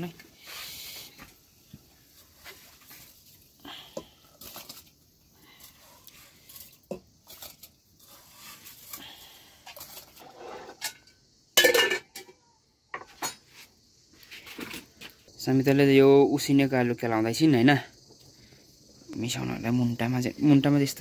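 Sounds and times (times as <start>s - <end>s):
metal pots and utensils clinking: 9.7s - 13.5s.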